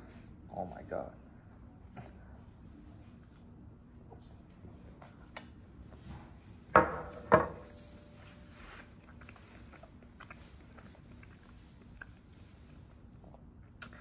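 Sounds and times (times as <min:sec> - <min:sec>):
ceramic bowl knocking on surface: 0:06.8 - 0:07.6.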